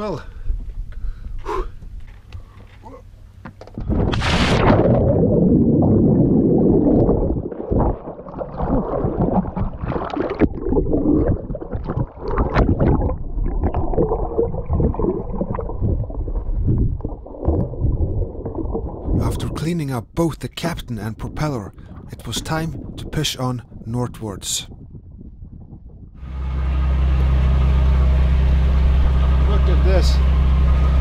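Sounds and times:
splash into the sea: 3.9 - 16.3
muffled underwater bubbling: 3.9 - 20.2
churning water: 3.9 - 24.0.

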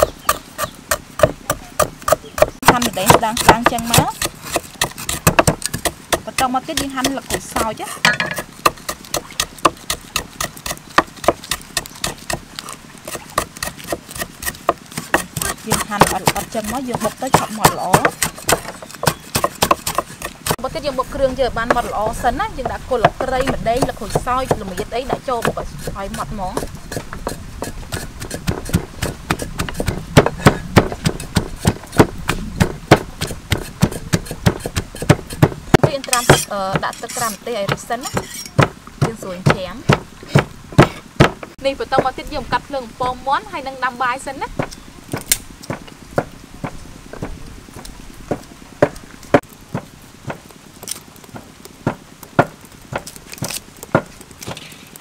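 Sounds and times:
pestle pounding in wooden mortar: 0.0 - 50.6, 51.2 - 54.7
leaves snapping when torn: 50.8 - 51.2, 53.0 - 55.0.

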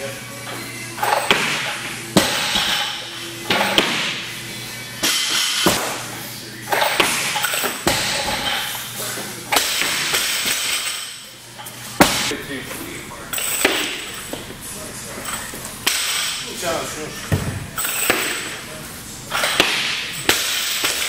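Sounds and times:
music in echoing gym: 0.0 - 21.0
barbell plates thudding on platform: 1.1 - 4.2.

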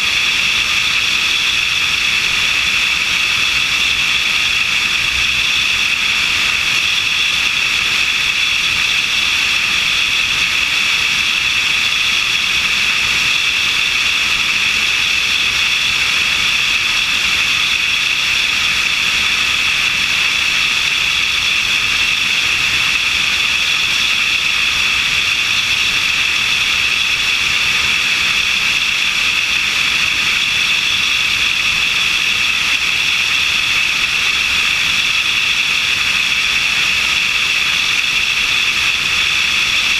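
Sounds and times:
small airplane in-flight noise: 0.0 - 39.9.

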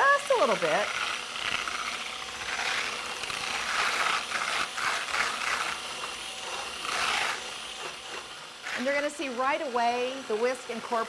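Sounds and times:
hand mixer whisking milk: 0.0 - 11.0.

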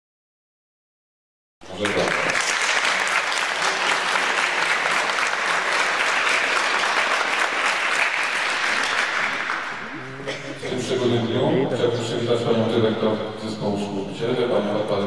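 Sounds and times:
audience applauding: 1.6 - 10.7.

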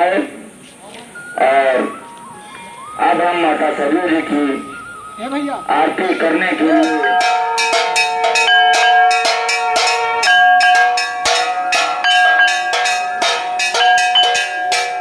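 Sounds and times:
temple bells rung rapidly: 3.0 - 15.0.

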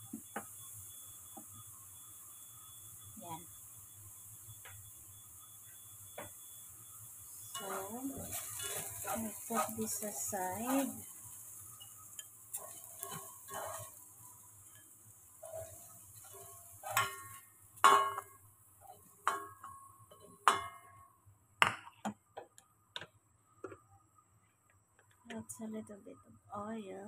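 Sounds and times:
spatula tapping a metal pan: 6.1 - 6.5, 7.4 - 11.2, 11.8 - 14.0, 14.6 - 21.0
spatula scraping a metal pan: 7.3 - 14.0, 14.6 - 18.4.

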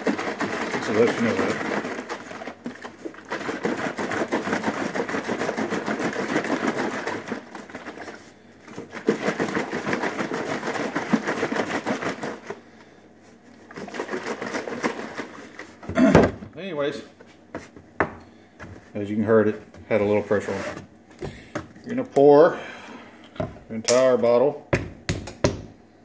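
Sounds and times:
water sloshing in plastic jug: 0.0 - 16.5.

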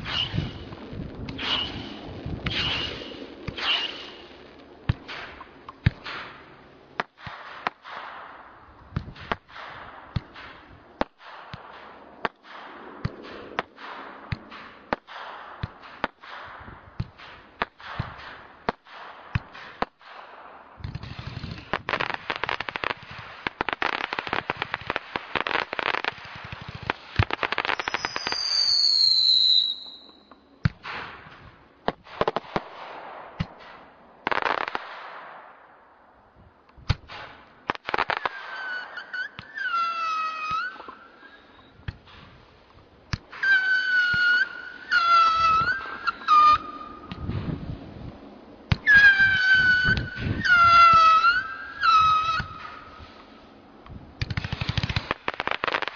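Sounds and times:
firework whistle: 0.0 - 0.7, 1.3 - 4.3, 27.5 - 30.4, 37.9 - 41.8, 43.3 - 47.4, 48.7 - 53.2
rapid firework pops: 0.0 - 35.6, 36.7 - 39.6, 41.8 - 47.7, 53.8 - 55.9
firework shots: 0.0 - 55.9.

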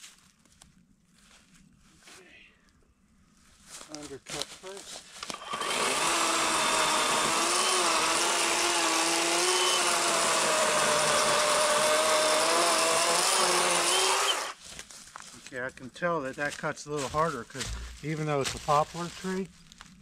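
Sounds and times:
electric chainsaw cutting wood: 5.3 - 14.6.

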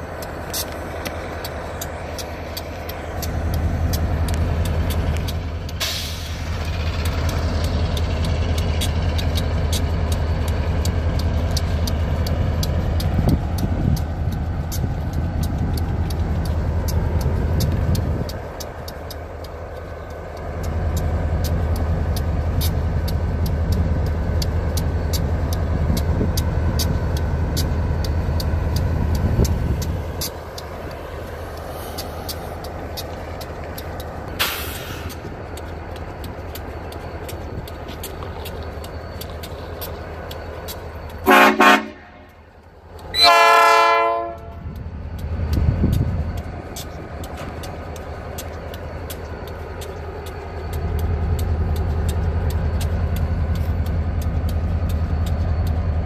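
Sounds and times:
diesel locomotive engine rumble: 0.0 - 56.0
brief hiss: 34.4 - 35.1
light clicks: 44.4 - 56.0.

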